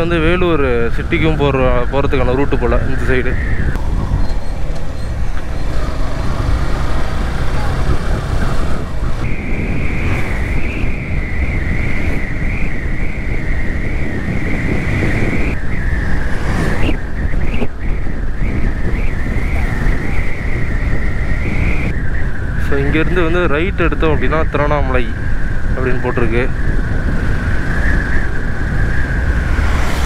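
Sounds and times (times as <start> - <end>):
high-pitched whine: 0.0 - 30.0
wind and road noise: 0.0 - 30.0
motorcycle engine: 3.7 - 11.6.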